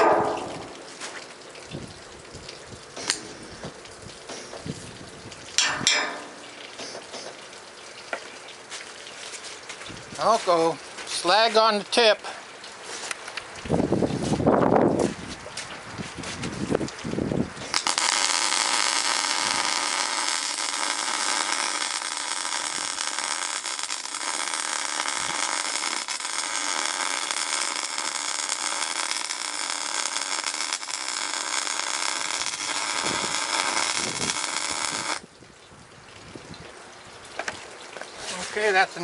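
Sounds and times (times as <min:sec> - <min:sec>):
arc welder crackling: 0:00.0 - 0:01.6, 0:16.9 - 0:35.3.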